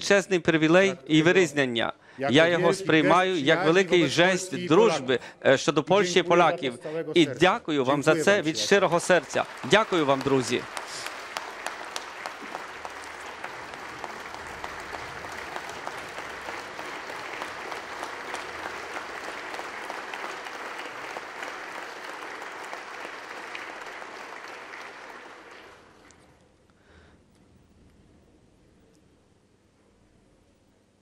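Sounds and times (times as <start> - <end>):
crowd applauding: 8.0 - 26.3.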